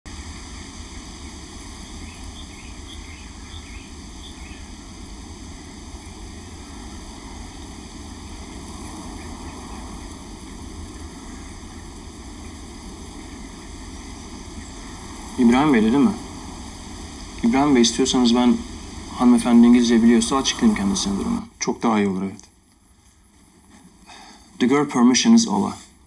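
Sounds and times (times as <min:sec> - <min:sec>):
outdoor rushing hiss: 0:00.0 - 0:26.0
faint high chirps: 0:00.9 - 0:04.9.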